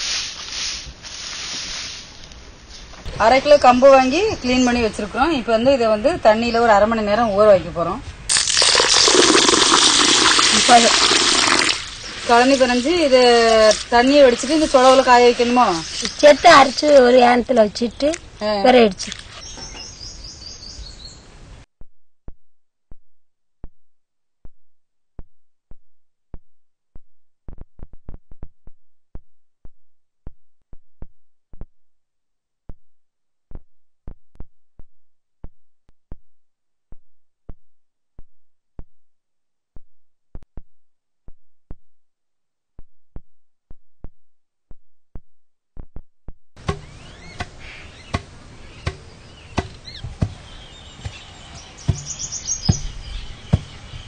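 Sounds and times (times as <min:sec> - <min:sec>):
sharp knocks: 0:46.6 - 0:50.4, 0:51.8 - 0:53.9.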